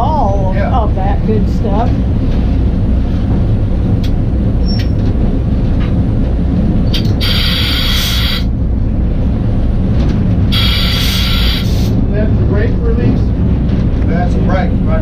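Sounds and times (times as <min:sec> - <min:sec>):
diesel engine low rumble: 0:00.0 - 0:15.0
air hiss: 0:06.9 - 0:08.5, 0:10.5 - 0:12.0.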